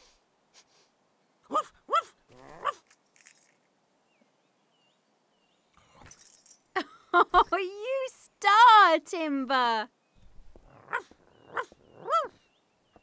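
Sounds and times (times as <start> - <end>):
cartoon dog barking: 1.5 - 2.8, 10.8 - 12.4.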